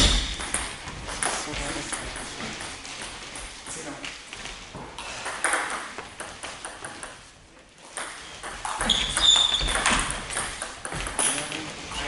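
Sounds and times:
short high squeak: 0:08.8 - 0:09.8.

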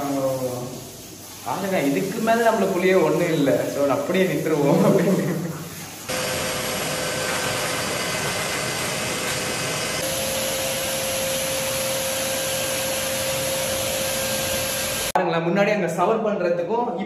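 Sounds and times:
pet blower rushing air: 0:06.1 - 0:15.2.

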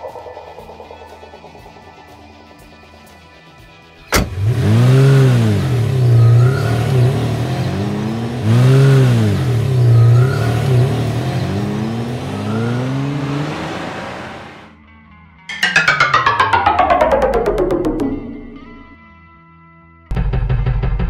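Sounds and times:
cartoon car engine revving: 0:04.0 - 0:14.7, 0:15.5 - 0:18.8.

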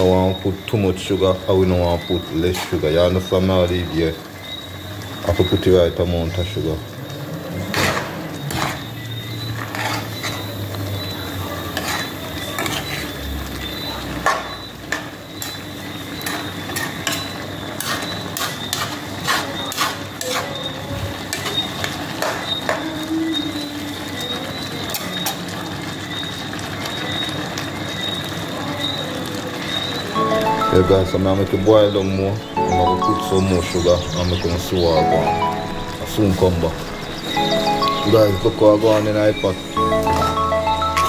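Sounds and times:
metal spoon scraping a pan: 0:02.3 - 0:03.3, 0:07.8 - 0:13.2, 0:16.2 - 0:22.8.

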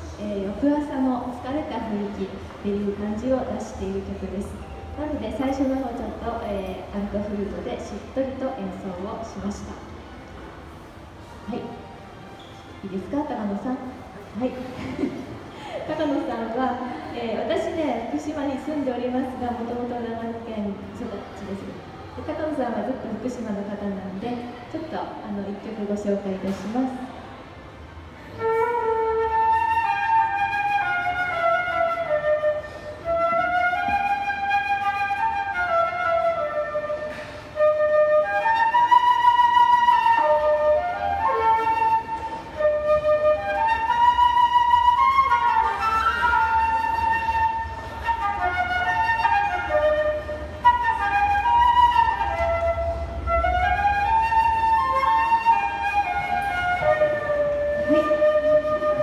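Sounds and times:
concert flute melody: 0:28.2 - 0:59.0.

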